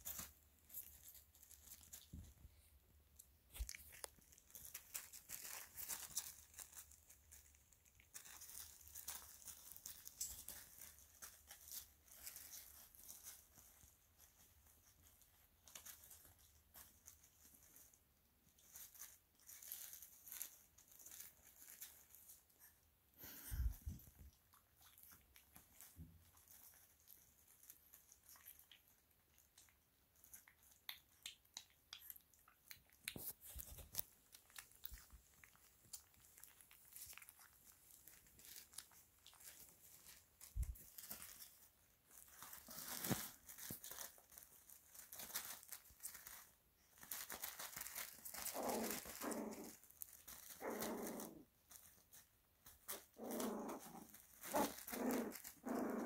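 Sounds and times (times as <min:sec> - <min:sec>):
bedding rustling and crinkling: 0:00.0 - 0:30.8, 0:32.6 - 0:56.0
puppy growls: 0:48.3 - 0:52.0, 0:52.9 - 0:56.0.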